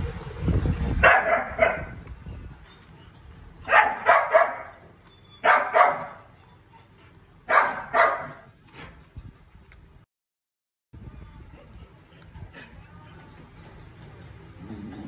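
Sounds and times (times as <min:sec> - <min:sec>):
bark-like animal calls: 0:03.7 - 0:04.8, 0:05.4 - 0:06.2.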